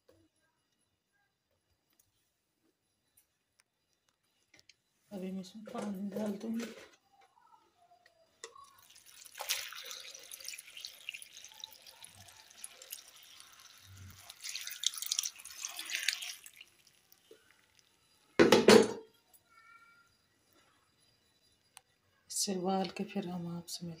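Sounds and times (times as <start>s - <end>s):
water pouring into metal pot: 8.4s - 18.6s.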